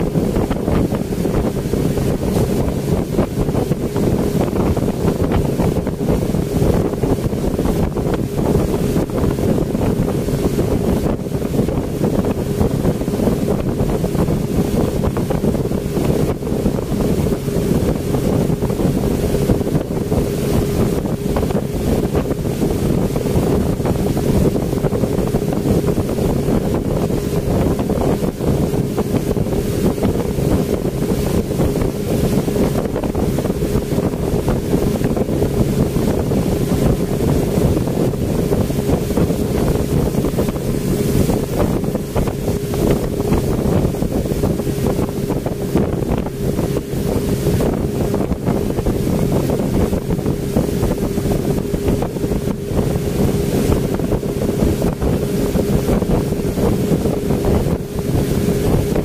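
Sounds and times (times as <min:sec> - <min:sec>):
speedboat engine running: 0:00.0 - 0:59.0
water rushing past hull: 0:00.0 - 0:59.0
wind buffeting microphone: 0:00.0 - 0:59.0.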